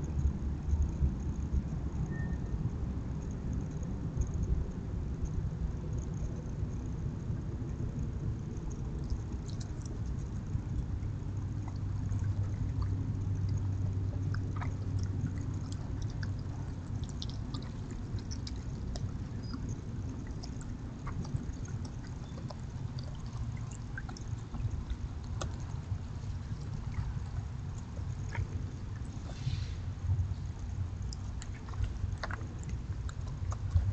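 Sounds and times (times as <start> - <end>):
steady low hum: 0.0 - 33.9
animals chewing: 8.5 - 33.9.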